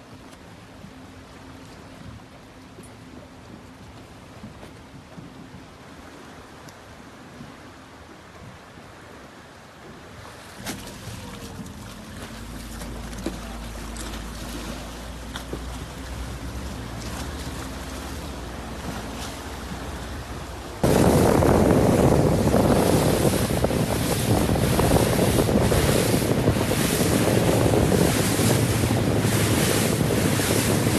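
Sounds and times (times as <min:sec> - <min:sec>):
water churning and sloshing: 0:00.0 - 0:30.9
outboard motor running: 0:10.4 - 0:30.9
wind buffeting microphone: 0:10.6 - 0:30.9.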